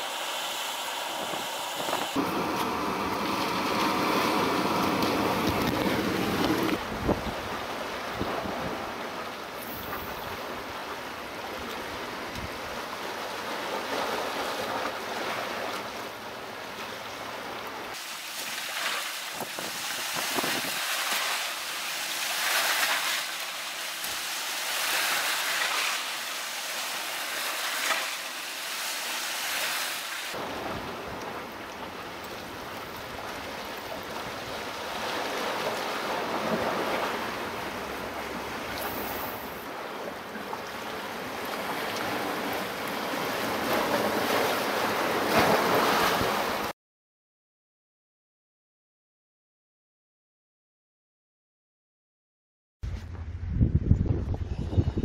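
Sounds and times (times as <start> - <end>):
rough sea washing against rocks: 0.0 - 46.7
wind buffeting microphone: 52.8 - 55.0.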